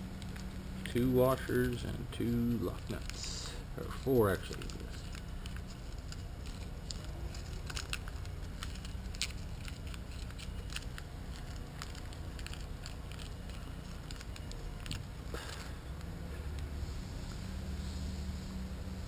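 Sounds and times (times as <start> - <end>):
low background rumble: 0.0 - 19.0.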